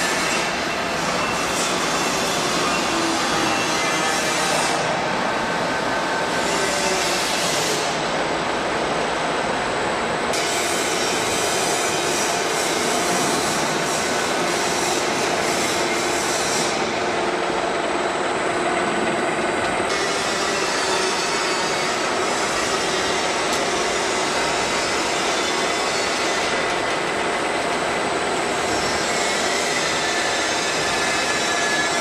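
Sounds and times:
roll forming machine running: 0:00.0 - 0:32.0.

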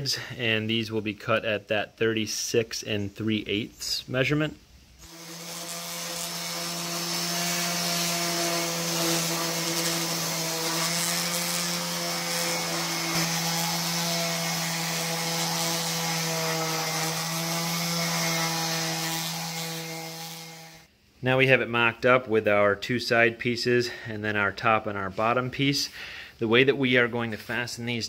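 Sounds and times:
orbital sander on wood: 0:05.0 - 0:20.9.

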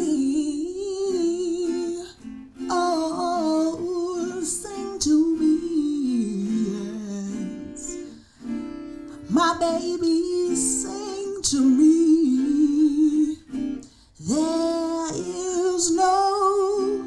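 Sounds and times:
acoustic guitar: 0:00.0 - 0:17.0
woman singing: 0:00.0 - 0:17.0.

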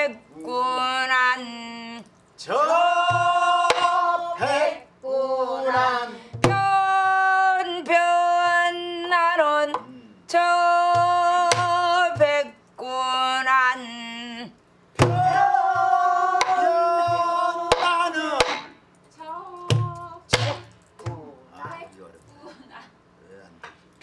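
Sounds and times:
woman singing: 0:00.0 - 0:14.6, 0:19.1 - 0:20.7
stick striking barrel drum: 0:03.0 - 0:04.6, 0:05.7 - 0:06.8, 0:10.9 - 0:12.4, 0:15.0 - 0:18.8, 0:19.7 - 0:21.8.

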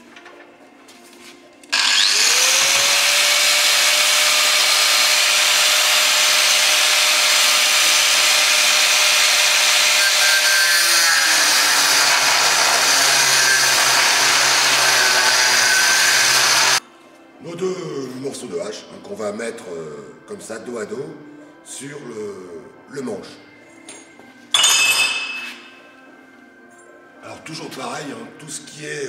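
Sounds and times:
angle grinder cutting steel: 0:01.8 - 0:16.8.

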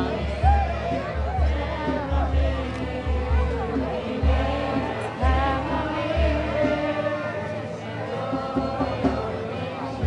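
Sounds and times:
many voices singing: 0:00.0 - 0:10.0.

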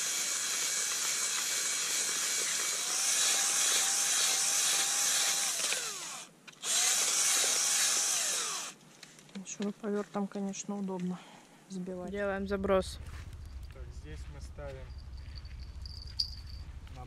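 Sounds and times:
cordless drill motor whining: 0:00.0 - 0:08.8.

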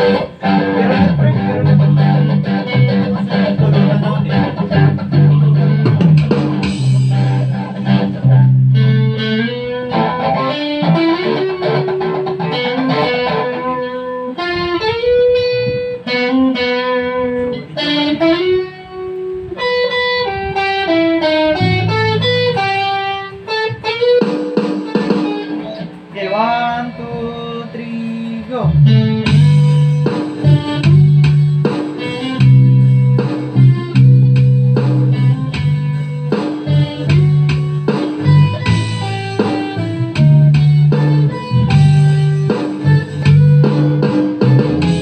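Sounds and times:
electric bass low notes: 0:00.0 - 0:23.9, 0:25.6 - 0:45.0
guitar single-note melody: 0:00.0 - 0:45.0.

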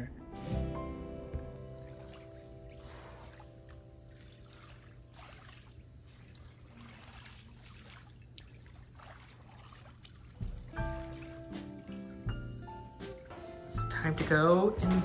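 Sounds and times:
background music: 0:00.0 - 0:04.1, 0:10.4 - 0:15.0
water sloshing and trickling: 0:00.4 - 0:15.0.

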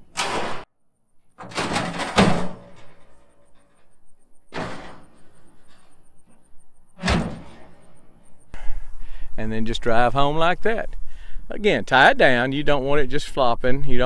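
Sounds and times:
wire panel clanking on truck bed: 0:00.0 - 0:00.7, 0:01.4 - 0:06.4, 0:07.0 - 0:08.3
heavy thunk: 0:04.5 - 0:05.8, 0:07.0 - 0:08.2.

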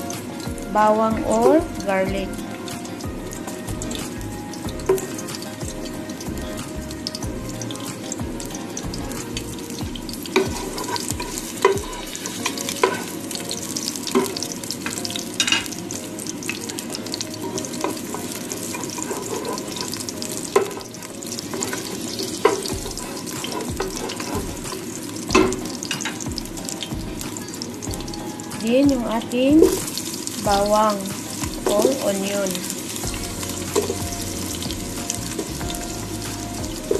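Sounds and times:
garlic sizzling in hot oil: 0:00.0 - 0:36.9
utensil tapping against pot: 0:10.3 - 0:13.1.

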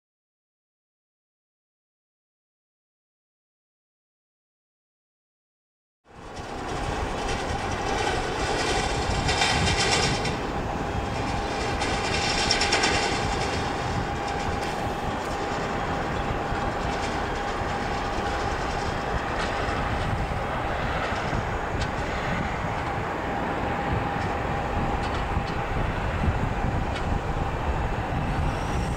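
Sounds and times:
distant jet engine rumble: 0:06.1 - 0:28.9.

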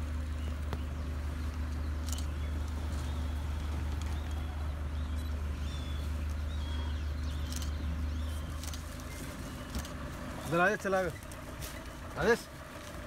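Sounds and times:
bird chirps: 0:00.0 - 0:10.6
vehicle engine idling: 0:00.0 - 0:13.0
sharp clicks: 0:01.5 - 0:02.8, 0:07.4 - 0:07.8.

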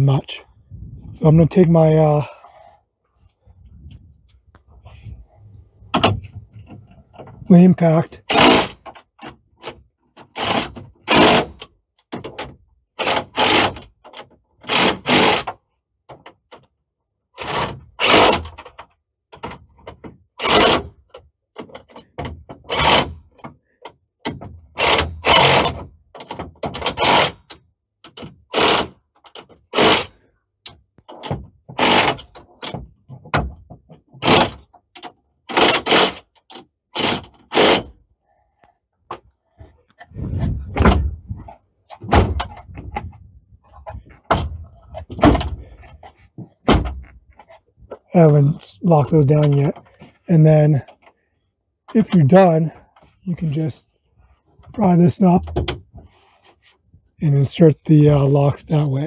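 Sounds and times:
impact driver bursts: 0:08.3 - 0:08.8, 0:10.4 - 0:11.6, 0:24.8 - 0:25.8, 0:28.5 - 0:28.9, 0:31.8 - 0:32.2, 0:37.0 - 0:37.9.

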